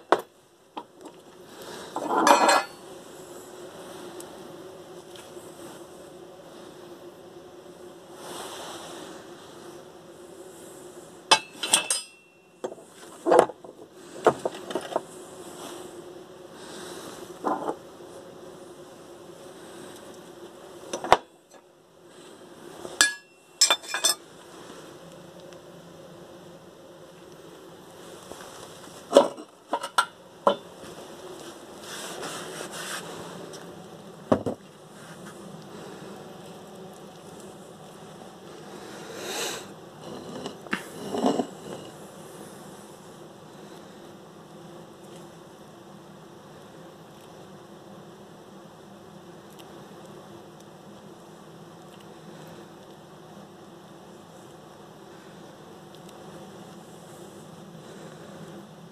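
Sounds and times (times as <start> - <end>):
steady hum: 0.0 - 58.9
metal parts clanking on workbench: 2.0 - 2.8, 11.3 - 12.3, 23.0 - 24.2.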